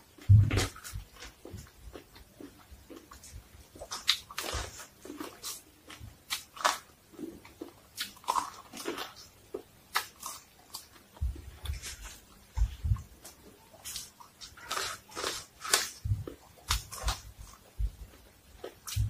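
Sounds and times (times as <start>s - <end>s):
chewing corn crunches: 0.2s - 12.3s.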